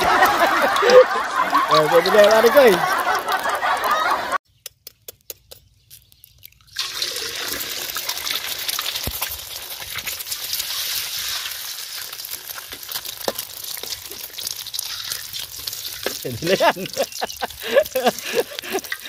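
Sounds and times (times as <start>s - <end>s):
egg cracking clicks: 4.6s - 6.8s, 8.0s - 19.0s
egg sizzling in hot oil: 6.5s - 19.0s.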